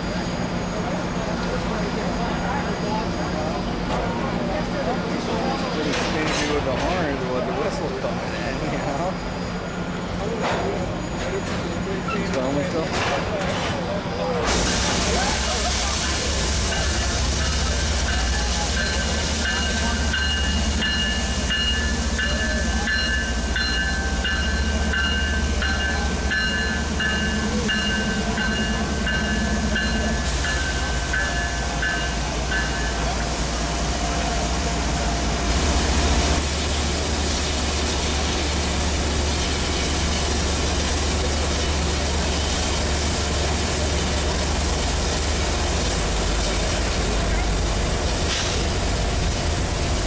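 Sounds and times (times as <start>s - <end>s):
diesel locomotives rumbling past: 0.0s - 50.0s
rail noise: 0.0s - 50.0s
locomotive bell ringing: 16.0s - 33.4s.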